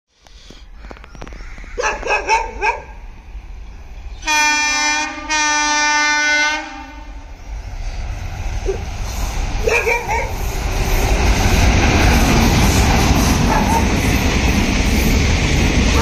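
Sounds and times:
dog barking: 0:01.8 - 0:03.0, 0:09.6 - 0:10.4, 0:13.5 - 0:14.0
locomotive horn blasts: 0:04.2 - 0:07.2.

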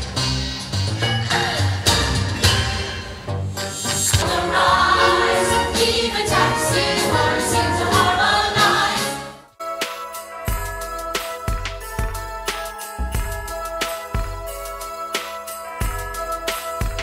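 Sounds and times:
music with held notes: 0:00.0 - 0:17.0
choir singing with music: 0:00.3 - 0:10.8.

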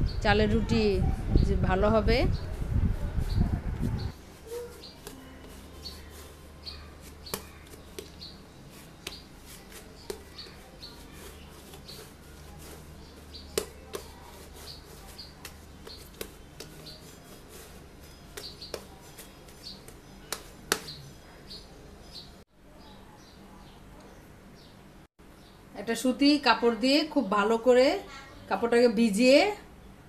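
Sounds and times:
dough kneaded by hand: 0:01.5 - 0:22.5
dough tapping on stone counter: 0:07.2 - 0:08.3, 0:09.0 - 0:10.6, 0:12.6 - 0:21.0.

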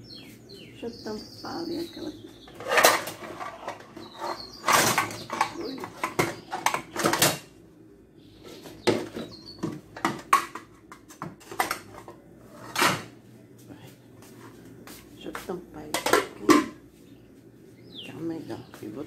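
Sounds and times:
containers and lids rattling: 0:02.4 - 0:07.5, 0:08.6 - 0:13.1, 0:15.9 - 0:16.8.

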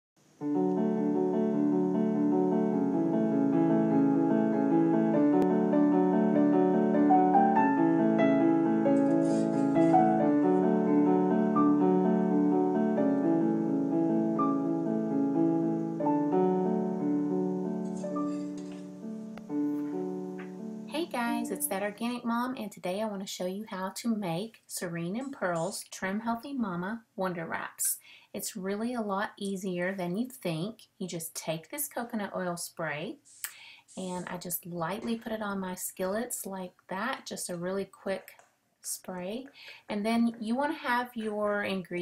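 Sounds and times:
gentle piano music: 0:00.4 - 0:22.0.

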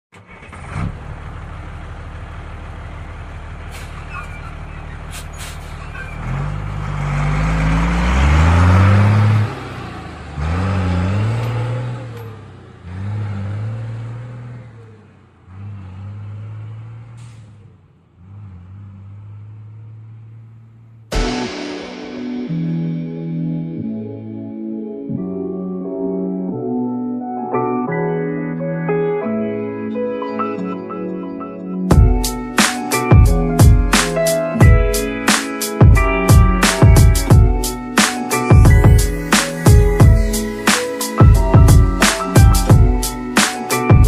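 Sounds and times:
engine idling and revving: 0:00.1 - 0:21.7, 0:31.9 - 0:44.0.

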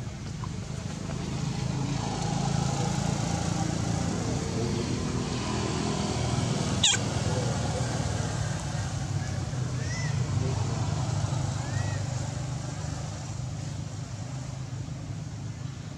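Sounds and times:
vehicle engine running: 0:00.0 - 0:15.9
sharp high squeak: 0:06.8 - 0:07.0.

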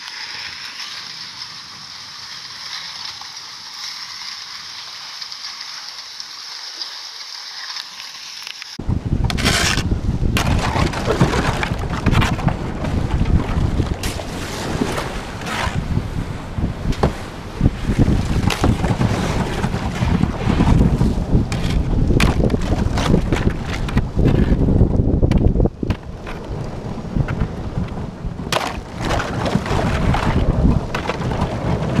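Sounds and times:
kayak hull crunching through ice: 0:00.0 - 0:32.0
wind buffeting microphone: 0:08.8 - 0:32.0.

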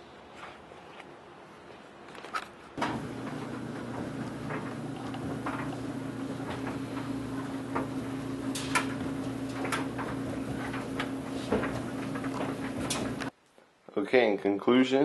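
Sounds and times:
electrical hum of appliance: 0:02.8 - 0:13.3.

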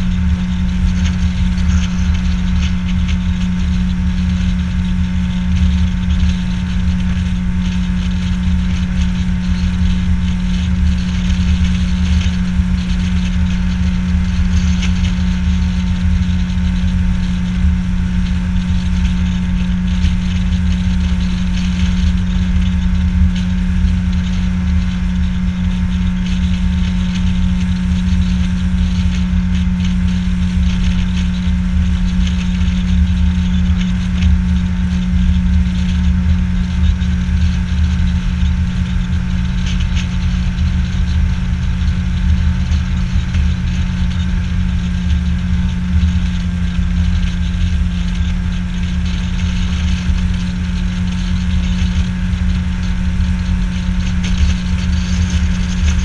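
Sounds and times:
outboard motor droning: 0:00.0 - 0:56.0.

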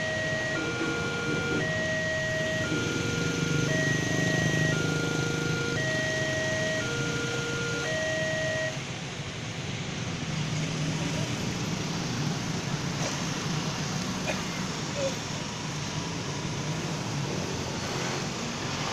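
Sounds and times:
two-note crossing warning tone: 0:00.0 - 0:08.8
motorcycle engines: 0:00.0 - 0:18.9
traffic noise: 0:00.0 - 0:18.9.

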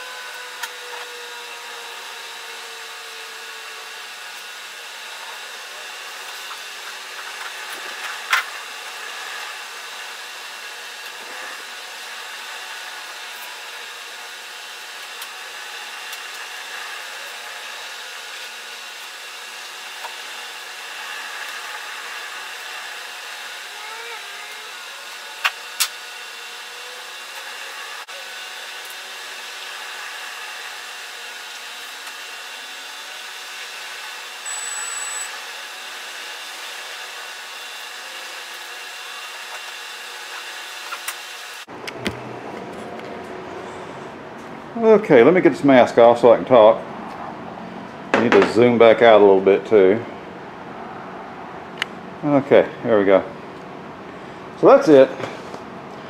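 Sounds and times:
steady background hum: 0:39.1 - 0:56.0.

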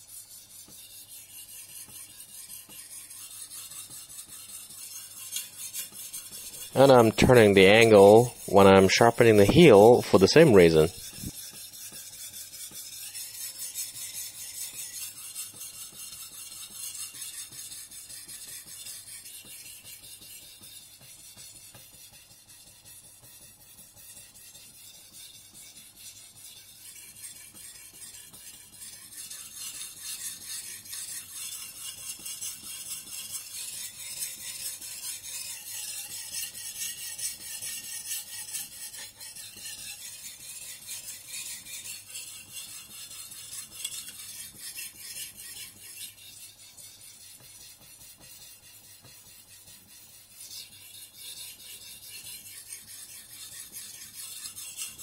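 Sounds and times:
knife scraping on whetstone: 0:00.0 - 0:55.0.

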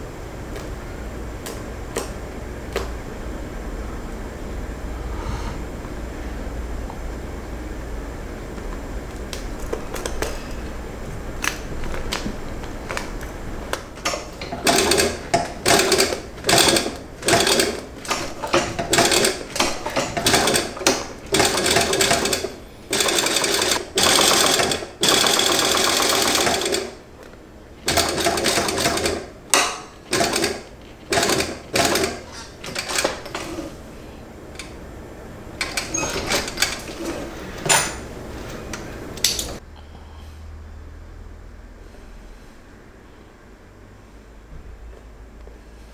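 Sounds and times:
industrial sewing machine stitching: 0:14.0 - 0:27.0, 0:27.8 - 0:33.7, 0:35.6 - 0:37.3.

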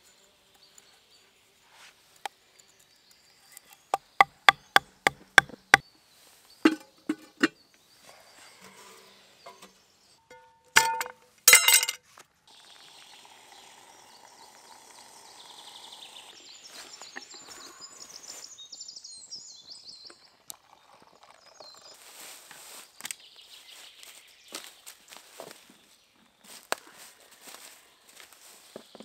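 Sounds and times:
outdoor ambience: 0:00.0 - 0:29.0
small bird chirping: 0:02.3 - 0:10.3, 0:12.5 - 0:22.1.

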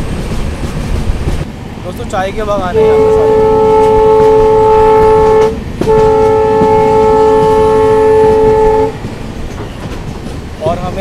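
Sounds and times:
moving train running noise: 0:00.0 - 0:11.0
train horn blast: 0:02.8 - 0:09.0.

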